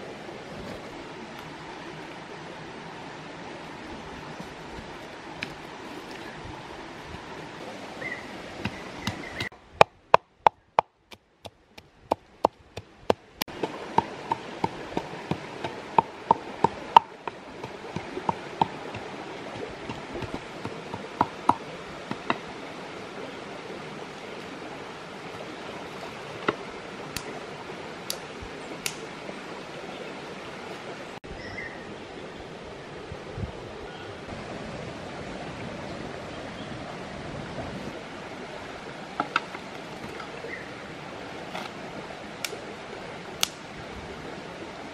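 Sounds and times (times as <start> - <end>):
shallow stream rushing: 0.0 - 44.9.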